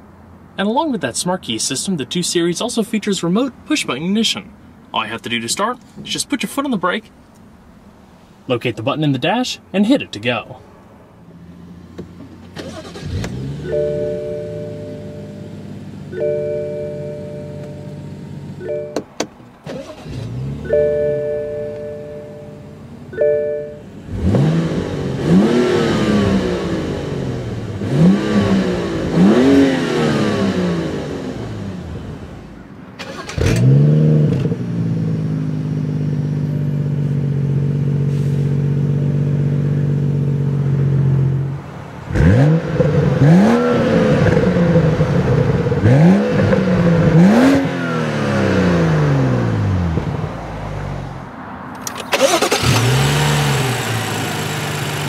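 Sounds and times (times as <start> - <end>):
car engine revving and idling: 10.8 - 55.0.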